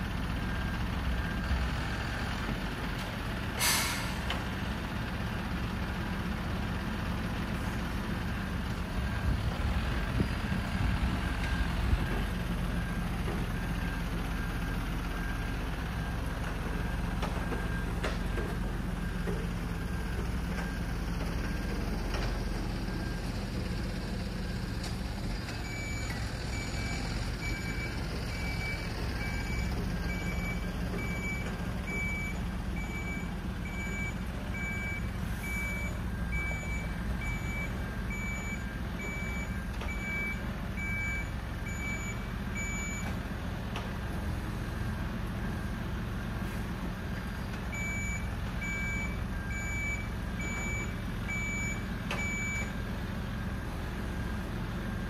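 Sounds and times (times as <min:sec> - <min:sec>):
diesel truck engine running: 0:00.0 - 0:55.0
reversing alarm beeping: 0:25.6 - 0:43.2, 0:47.0 - 0:52.8.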